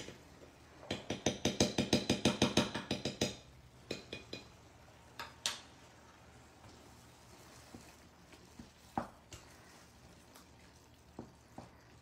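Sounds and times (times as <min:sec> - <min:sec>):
spoon knocking on frying pan: 0:00.0 - 0:05.7.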